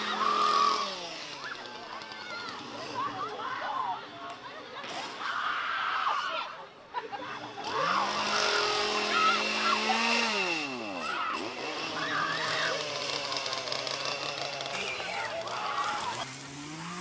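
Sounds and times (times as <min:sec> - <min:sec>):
chainsaw engine revving: 0:00.0 - 0:03.2, 0:07.5 - 0:17.0
voices: 0:00.0 - 0:16.5
shrieks: 0:07.8 - 0:13.5.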